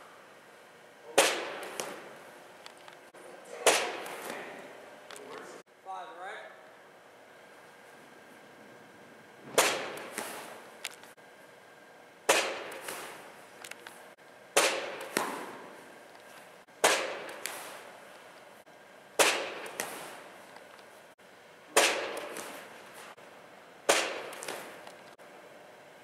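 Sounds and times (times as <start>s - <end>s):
baseballs smacking catcher's gear: 1.1s - 5.5s, 9.4s - 11.1s, 12.3s - 18.6s, 19.2s - 21.0s, 21.7s - 23.2s, 23.9s - 25.2s.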